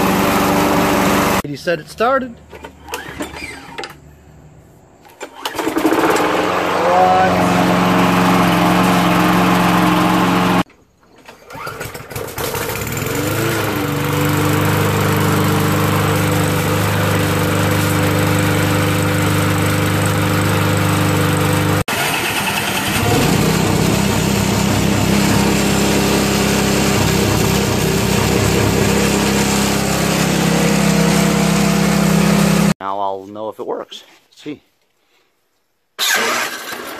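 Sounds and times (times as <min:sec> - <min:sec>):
lawn mower engine running: 0:00.0 - 0:01.4, 0:05.1 - 0:10.7, 0:11.4 - 0:32.8, 0:36.0 - 0:36.9
small engine running choppily: 0:00.0 - 0:01.4, 0:05.6 - 0:10.7, 0:11.6 - 0:32.8.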